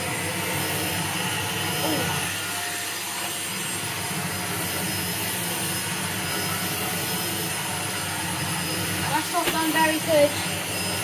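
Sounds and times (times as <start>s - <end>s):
stick vacuum running: 0.0s - 11.0s.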